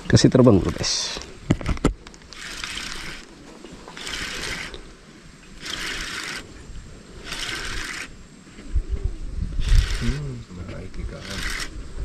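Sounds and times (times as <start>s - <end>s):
fishing reel running: 2.3s - 3.3s, 4.0s - 4.8s, 5.6s - 6.5s, 7.2s - 8.2s, 9.6s - 10.2s, 11.1s - 11.8s.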